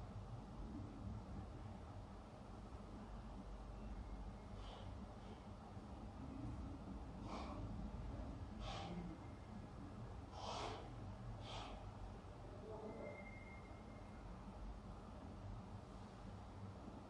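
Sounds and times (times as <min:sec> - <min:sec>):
low steady hum: 0:00.0 - 0:17.0
person breathing out sharply: 0:08.6 - 0:09.0, 0:10.3 - 0:11.8.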